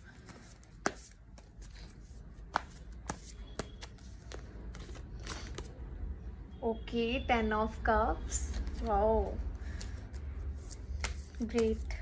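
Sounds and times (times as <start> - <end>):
cards rustling: 0.0 - 5.8, 8.4 - 12.0
cards snapping: 0.2 - 5.7, 9.6 - 11.8.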